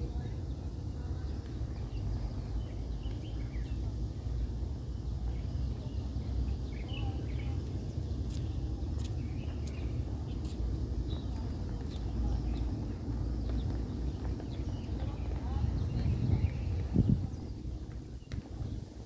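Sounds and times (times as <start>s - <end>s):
low outdoor rumble: 0.0s - 19.0s.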